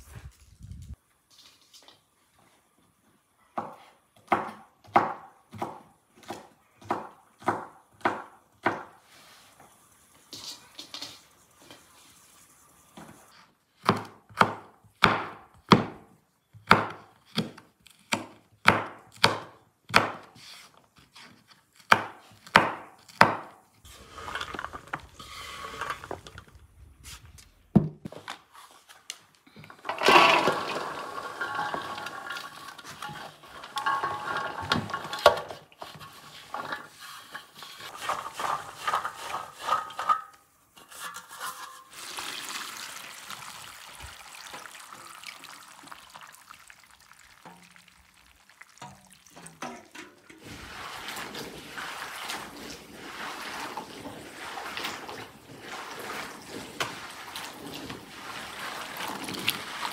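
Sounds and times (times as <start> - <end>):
beans clattering into metal basin: 23.9 - 26.6, 29.8 - 59.9.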